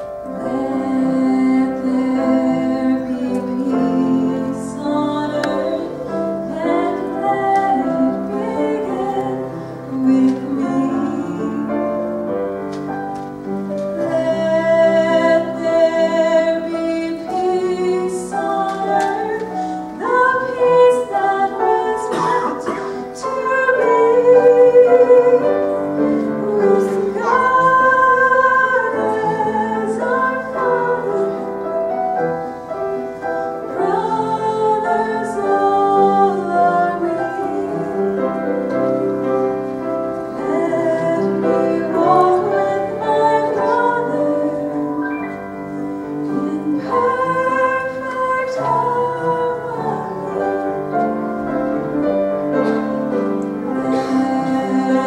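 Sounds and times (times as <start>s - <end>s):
grand piano accompaniment: 0.0s - 55.0s
woman singing: 0.3s - 12.2s, 13.9s - 31.8s, 33.7s - 38.9s, 40.3s - 45.1s, 46.2s - 51.2s, 53.5s - 55.0s.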